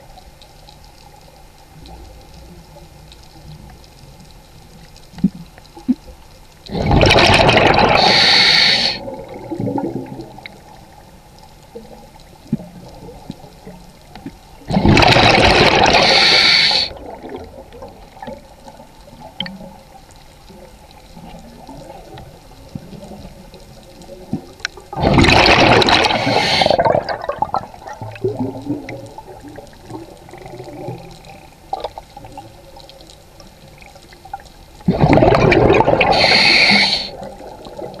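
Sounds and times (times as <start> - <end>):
faint underwater clicks: 0.0 - 38.0
scuba regulator bubbles rushing: 6.7 - 10.9, 14.7 - 18.4, 24.2 - 32.5, 34.8 - 38.0.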